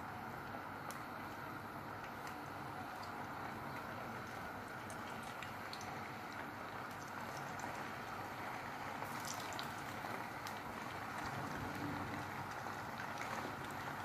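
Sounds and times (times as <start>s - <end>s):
oil crackling: 0.8s - 14.0s
chicken sizzling in hot oil: 1.5s - 14.0s.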